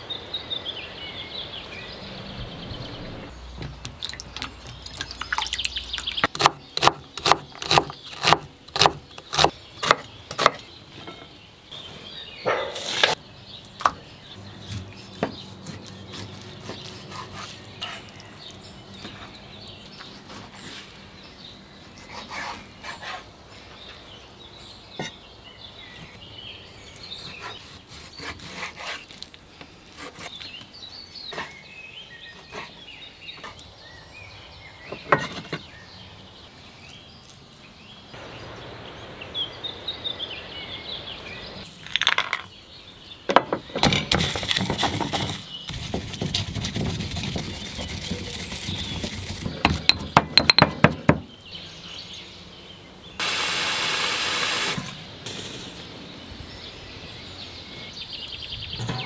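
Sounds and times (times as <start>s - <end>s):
blade scraping and knocking on board: 43.3s - 51.3s
pestle grinding in stone mortar: 43.8s - 51.2s.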